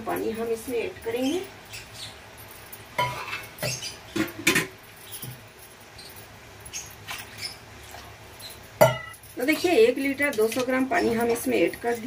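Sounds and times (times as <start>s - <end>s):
cookware clattering: 3.0s - 5.5s, 6.7s - 11.9s.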